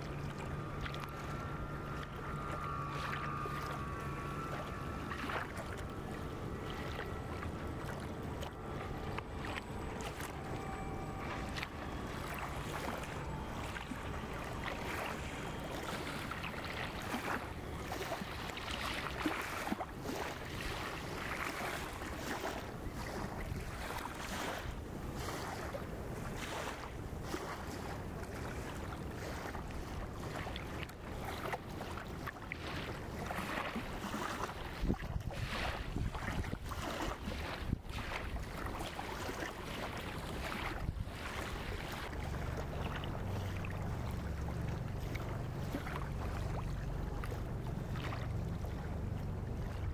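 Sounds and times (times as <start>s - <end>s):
wind buffeting microphone: 34.6s - 42.2s.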